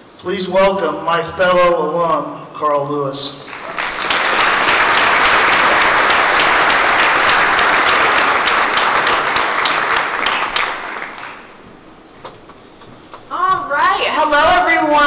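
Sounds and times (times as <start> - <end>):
audience applauding: 3.4 - 11.7.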